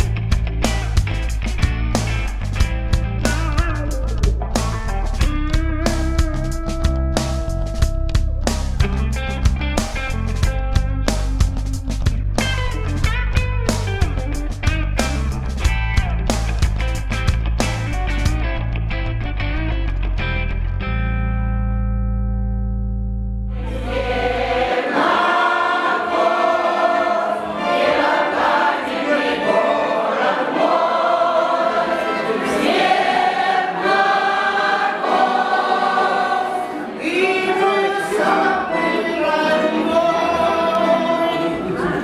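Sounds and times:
women's choir singing: 23.6 - 42.0.

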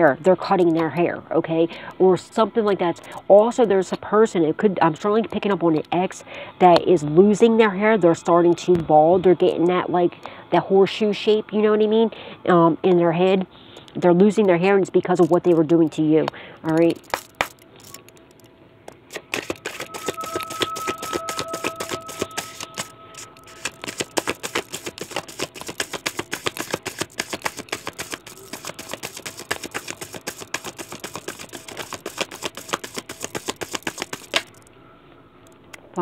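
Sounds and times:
cards being shuffled: 16.7 - 34.7.

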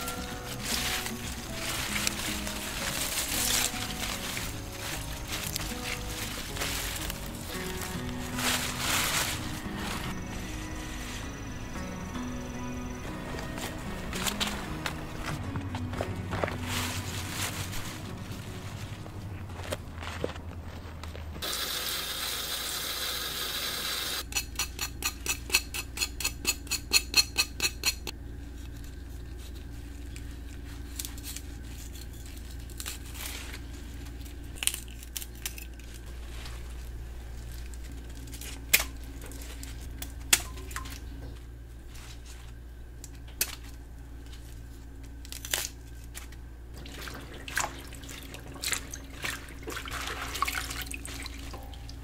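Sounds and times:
low steady hum: 0.0 - 21.4, 24.2 - 52.0
greens snapping and clicking: 34.5 - 36.1.

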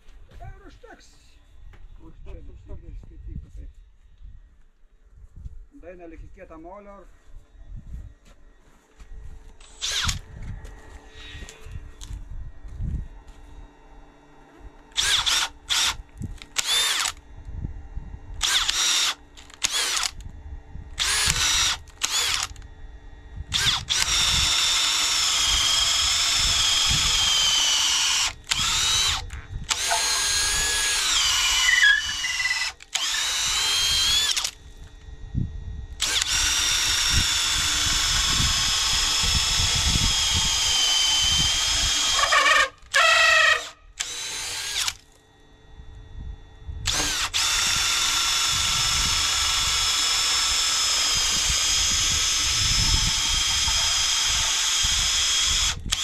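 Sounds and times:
power drill boring into timber: 9.6 - 10.3, 14.9 - 17.2, 18.4 - 20.2, 20.9 - 22.6, 23.5 - 34.6, 36.0 - 45.1, 46.8 - 56.0.

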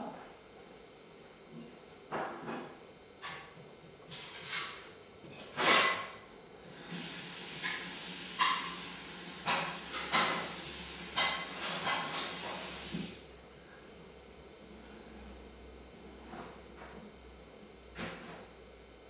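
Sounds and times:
scrape: 4.1 - 4.8, 6.7 - 13.0
steady hiss: 6.7 - 13.2.

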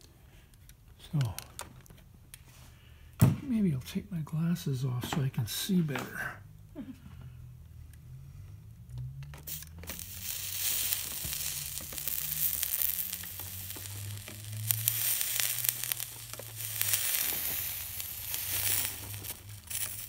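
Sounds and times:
flux sizzling and crackling: 9.4 - 20.0.

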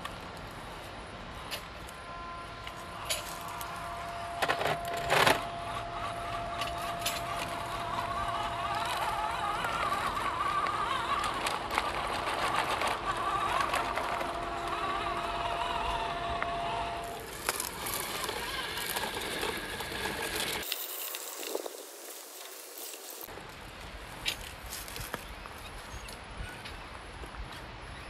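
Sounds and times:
electric motor whining: 1.9 - 23.3.

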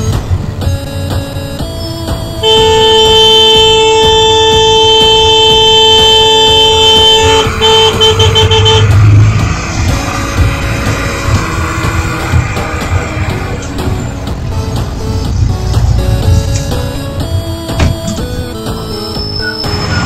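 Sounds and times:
background music: 0.0 - 20.0
vehicle horn blast: 2.3 - 9.2
short horn toots: 2.4 - 9.0.

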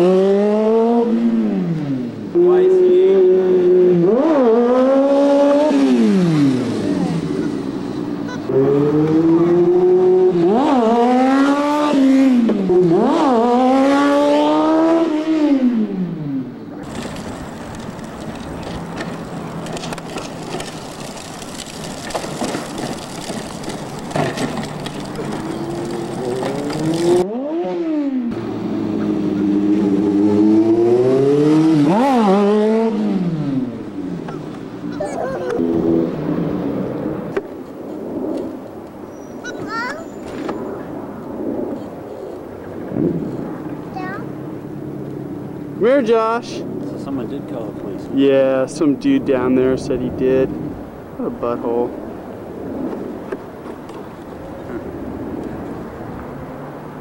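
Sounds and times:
motorcycle engine accelerating: 0.0 - 37.5.

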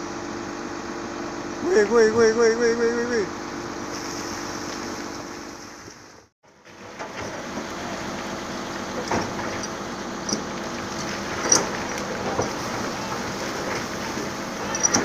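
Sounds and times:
excavator diesel engine running: 6.5 - 15.0
bucket knocking and scraping: 8.9 - 15.0.

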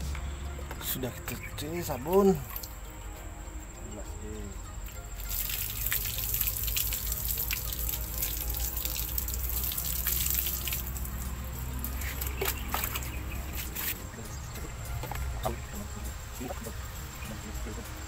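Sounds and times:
water splashing over plastic hull: 5.2 - 14.0.

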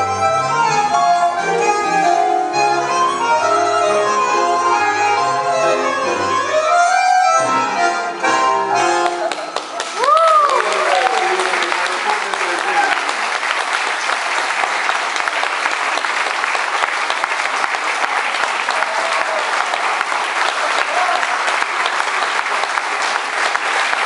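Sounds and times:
audience applauding: 8.8 - 24.0.

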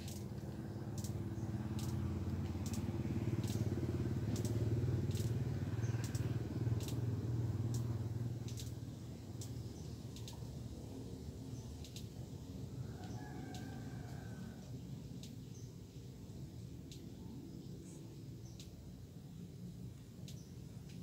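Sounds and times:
faint high ticks: 0.0 - 10.6, 11.6 - 12.2, 13.0 - 15.7, 16.8 - 17.1, 18.4 - 18.8, 20.0 - 21.0
small engine passing: 0.0 - 11.8.

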